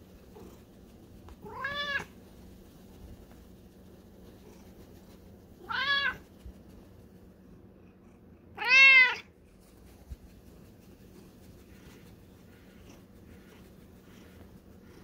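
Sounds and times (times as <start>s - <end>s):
cat meowing: 1.4s - 2.1s, 5.6s - 6.2s, 8.6s - 9.3s.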